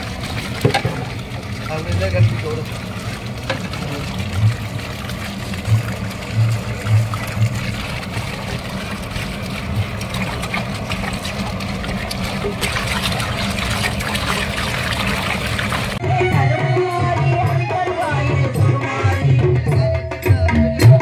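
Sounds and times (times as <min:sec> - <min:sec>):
steady low hum: 0:00.0 - 0:16.0
water pouring into metal pot: 0:00.0 - 0:16.0.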